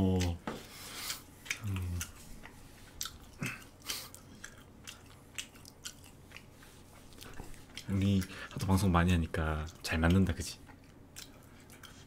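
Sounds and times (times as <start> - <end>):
wet chewing mouth clicks: 1.0 - 8.7, 9.6 - 12.0
person humming: 1.6 - 2.1.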